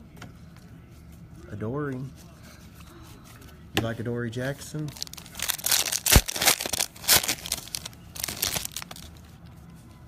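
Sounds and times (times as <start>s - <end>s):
foil wrapper crinkling: 4.9s - 9.2s.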